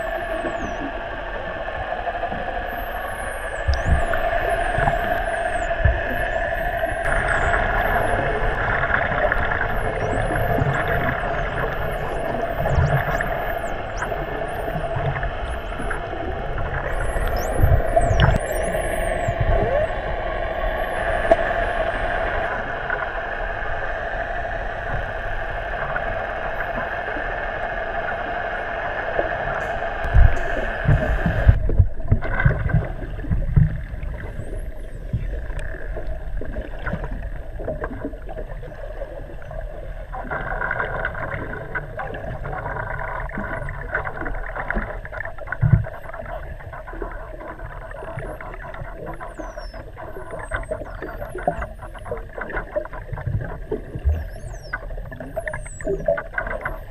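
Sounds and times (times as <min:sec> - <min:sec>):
underwater boat motor drone: 0:00.0 - 0:56.9
dolphin whistles: 0:02.6 - 0:22.8, 0:48.0 - 0:52.3, 0:54.1 - 0:56.9.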